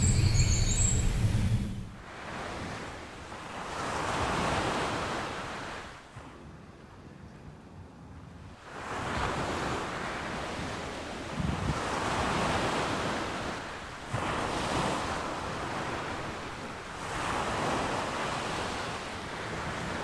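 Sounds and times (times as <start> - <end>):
ocean waves washing in: 0.0 - 6.2, 8.6 - 20.0.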